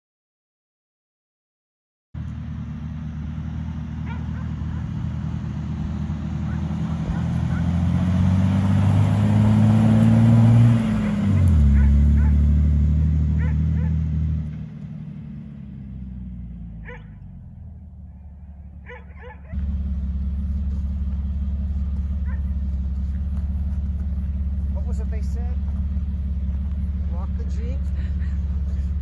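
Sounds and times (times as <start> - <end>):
jeep engine driving past: 2.2 - 29.0
dog barking faintly: 11.6 - 12.5, 16.8 - 17.2, 18.8 - 19.6, 22.2 - 22.6.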